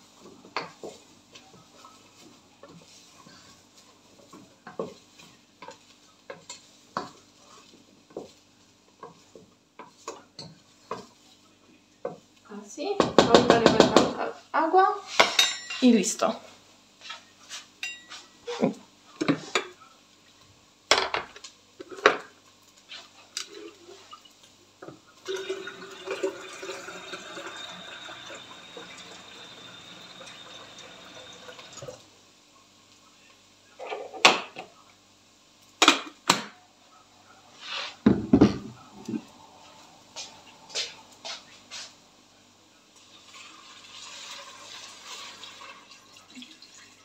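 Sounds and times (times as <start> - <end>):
tap water running into kettle: 25.2 - 32.0, 43.1 - 47.0.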